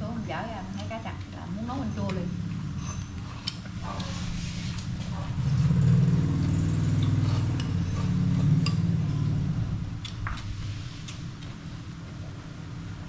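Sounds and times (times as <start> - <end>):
engine humming: 0.0 - 13.0
dishes and chopsticks clinking: 7.0 - 9.2.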